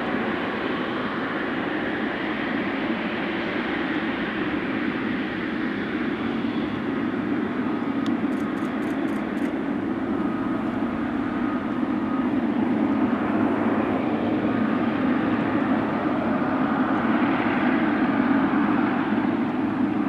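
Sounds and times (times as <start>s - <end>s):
jet engines rumbling: 0.0s - 20.0s.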